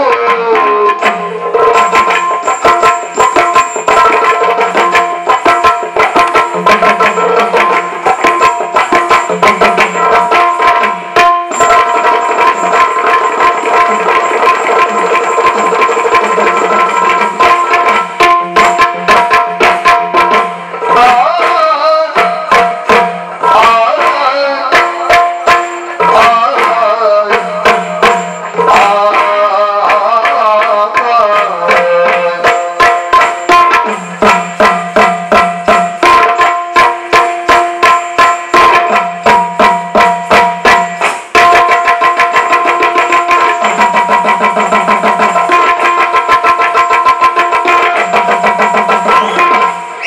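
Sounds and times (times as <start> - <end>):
man singing: 0.0 - 2.1, 20.8 - 33.8
barrel drum fast rhythm: 0.0 - 50.0.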